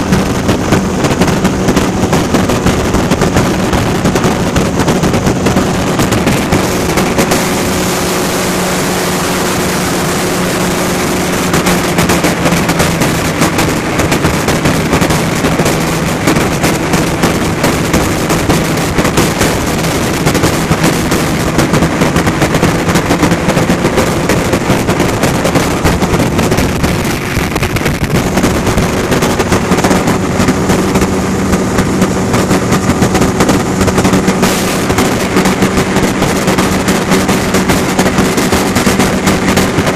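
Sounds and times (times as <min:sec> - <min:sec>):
ultralight aircraft engine droning: 0:00.0 - 0:39.9
wind buffeting microphone: 0:00.0 - 0:39.9.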